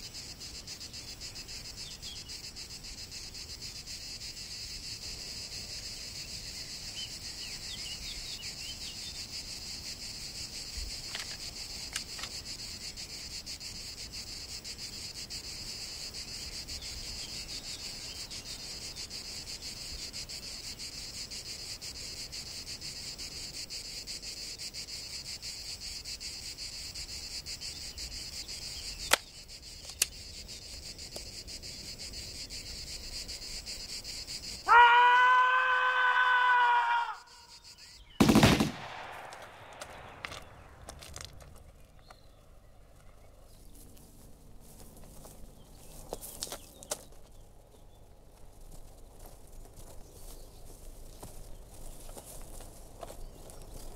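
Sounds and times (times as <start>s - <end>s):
crickets chirping: 0.0s - 53.9s
sharp clicks: 29.0s - 30.2s, 38.2s - 41.6s.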